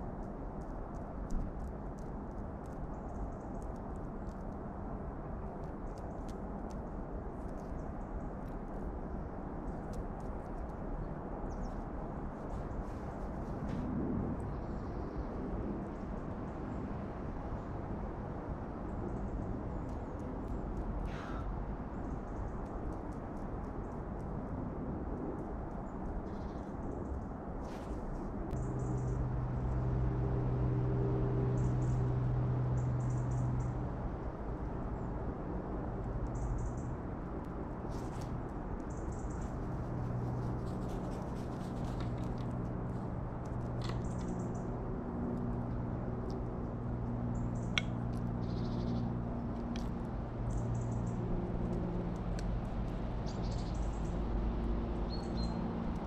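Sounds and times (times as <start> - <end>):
small birds chirping: 47.3 - 49.9, 50.5 - 51.2, 52.3 - 54.3, 55.0 - 56.0.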